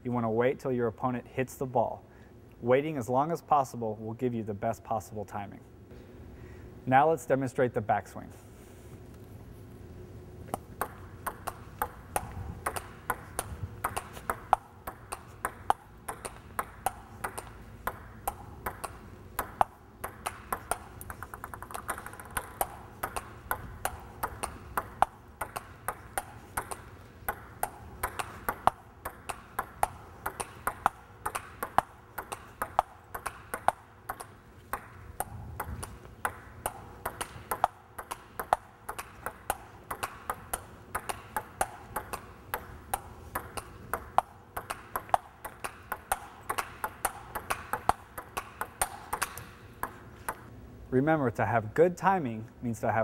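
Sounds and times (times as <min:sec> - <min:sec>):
table tennis ball rally: 0:10.5 - 0:50.5.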